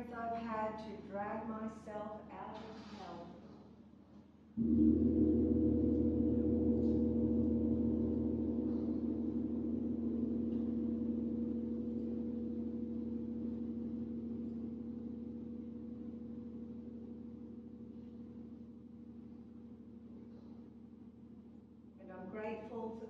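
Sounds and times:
large gong ringing: 0:04.6 - 0:21.4.

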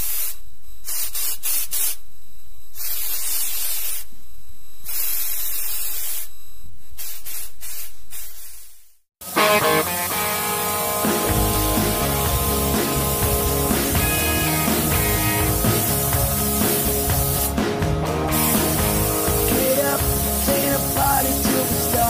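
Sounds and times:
spray hissing: 0:02.8 - 0:04.1, 0:07.0 - 0:22.0
electric guitar rock music: 0:09.2 - 0:22.0.

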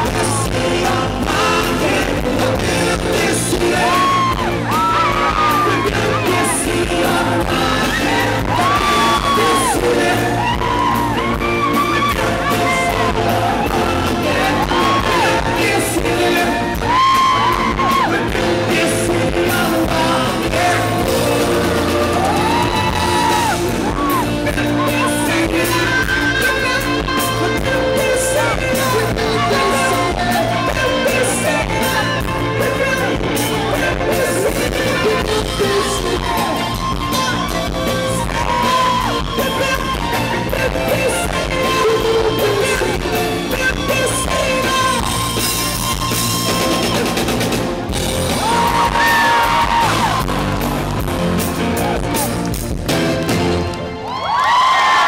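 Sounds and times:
man singing into microphone: 0:00.0 - 0:47.2
rock band playing: 0:00.0 - 0:55.0.

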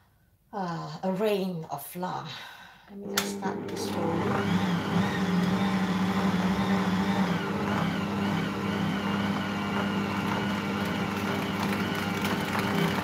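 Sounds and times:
stand mixer motor humming: 0:03.1 - 0:13.0.

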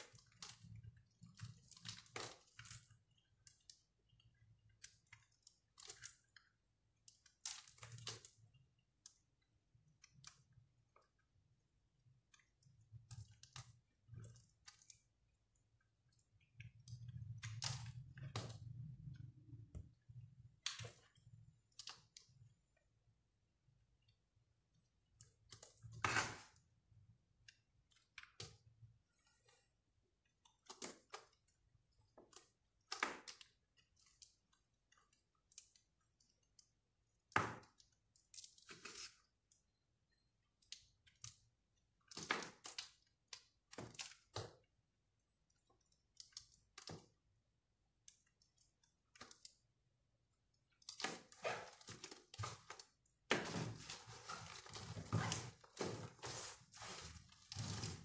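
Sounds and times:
knife cutting crumbly soap: 0:25.0 - 0:29.1.

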